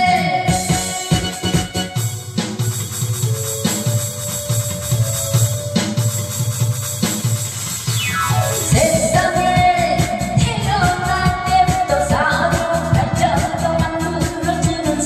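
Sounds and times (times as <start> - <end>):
drums: 0.0 - 15.0
steady bass beat: 0.0 - 15.0
tambourine-like percussion: 0.6 - 9.5
falling sweep: 7.0 - 9.2.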